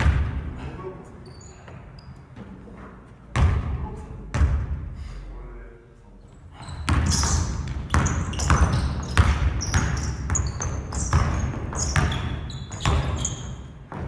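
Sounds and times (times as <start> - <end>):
basketball bouncing on wooden floor: 0.0 - 0.4, 3.3 - 4.8, 6.6 - 14.0
sneakers squeaking: 0.0 - 3.5, 6.3 - 14.0.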